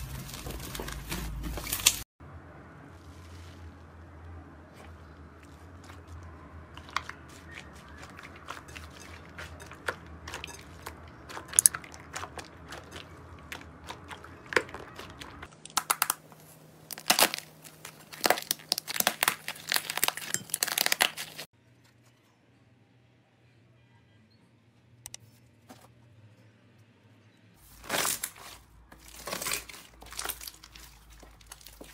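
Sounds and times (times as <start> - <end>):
foam beads crackling and popping: 14.2 - 21.5, 27.7 - 31.9.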